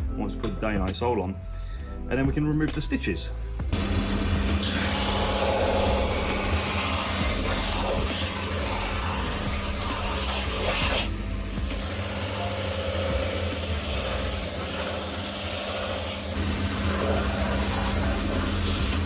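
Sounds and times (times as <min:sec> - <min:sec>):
sanding machine motor hum: 0:03.8 - 0:19.0.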